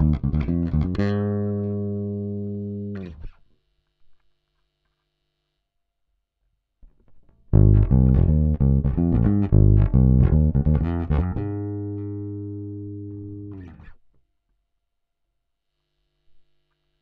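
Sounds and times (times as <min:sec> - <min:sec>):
electric bass plucked notes: 0:00.0 - 0:03.3, 0:07.5 - 0:14.0.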